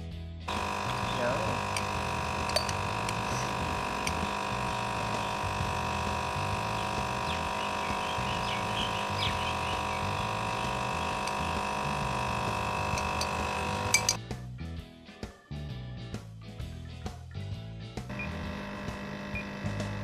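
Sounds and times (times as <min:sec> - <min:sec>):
induction heater whine and hum: 0:00.5 - 0:14.2, 0:18.1 - 0:20.0.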